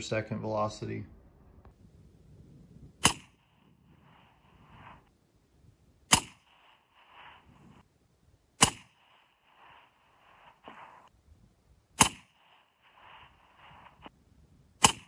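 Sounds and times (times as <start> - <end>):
rifle shots: 3.0 - 4.9, 6.1 - 7.8, 8.6 - 11.1, 12.0 - 14.1, 14.8 - 15.0.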